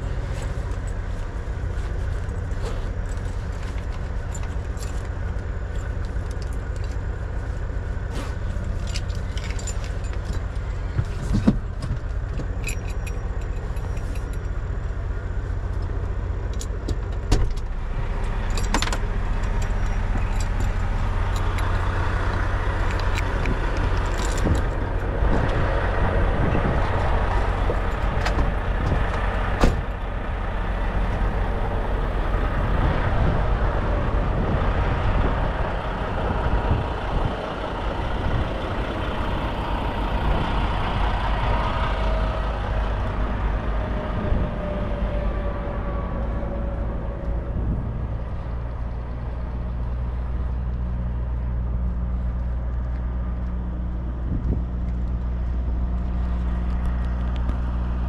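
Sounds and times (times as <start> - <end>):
road noise: 0.0 - 58.0
truck engine drone: 0.0 - 58.0
small rattles and clicks: 0.6 - 7.7, 8.3 - 14.6, 16.5 - 25.6.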